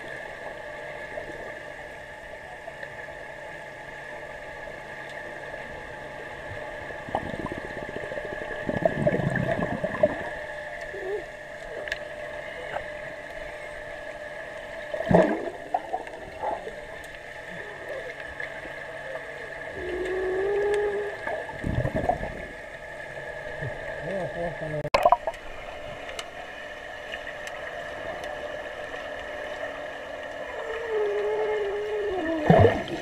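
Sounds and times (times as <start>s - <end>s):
underwater hum: 0.0s - 33.0s
bubbling and splashing of swimmer: 6.0s - 13.5s, 14.6s - 26.1s, 26.9s - 33.0s.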